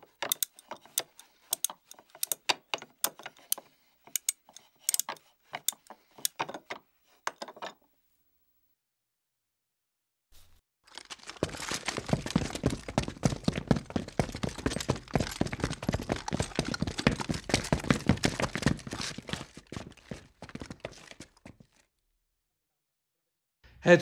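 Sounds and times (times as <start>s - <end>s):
tent pitching clatter: 10.8s - 21.4s
footsteps on concrete: 11.0s - 21.8s.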